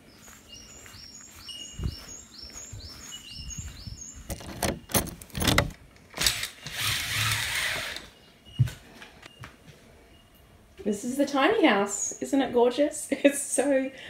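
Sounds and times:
bird chirping: 0.0s - 5.6s.

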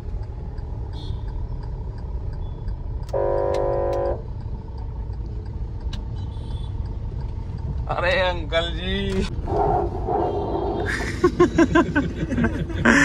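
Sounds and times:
street traffic rumble: 0.0s - 13.0s
vehicle horn blast: 3.1s - 4.2s.

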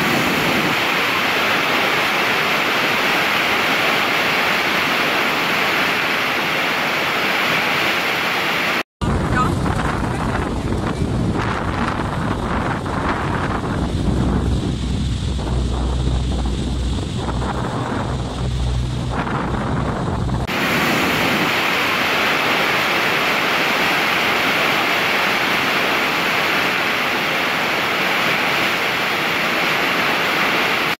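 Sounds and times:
loud waterfall rushing: 0.0s - 31.0s
rushing water: 0.0s - 31.0s
low hum: 9.0s - 21.3s
wind buffeting microphone: 9.0s - 24.7s.

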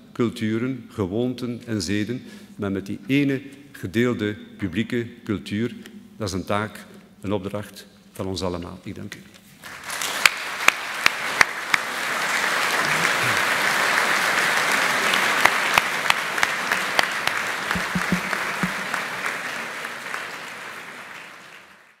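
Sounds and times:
audience applauding: 9.6s - 22.0s.

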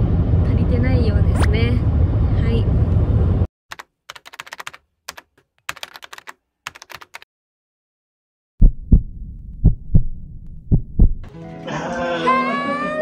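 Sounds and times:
keyboard key clicks: 3.7s - 7.2s
faint rumble: 8.6s - 11.3s
loud low thumps: 8.6s - 11.3s.

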